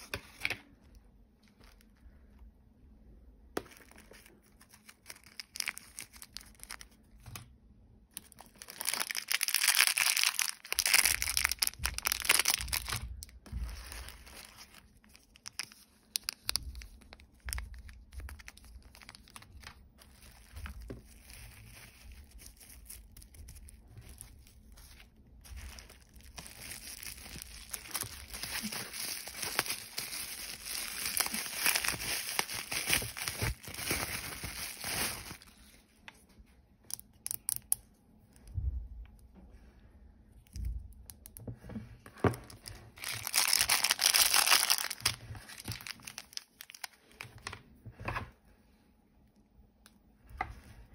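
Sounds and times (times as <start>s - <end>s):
plastic packaging crinkling: 3.6s - 7.5s, 8.1s - 35.7s, 42.4s - 47.6s.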